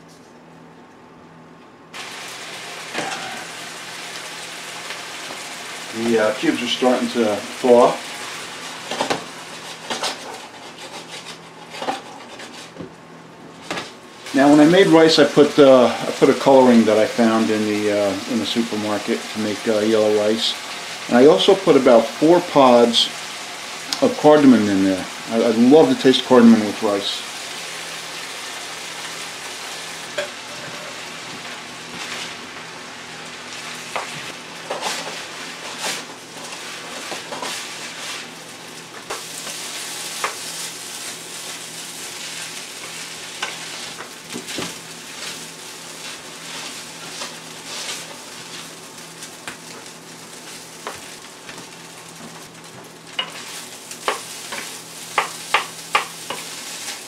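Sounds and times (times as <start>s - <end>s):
food sizzling in a frying pan: 2.0s - 10.3s, 13.7s - 57.0s
wooden spoon scraping a pan: 8.9s - 12.8s, 33.9s - 38.3s, 39.1s - 48.8s.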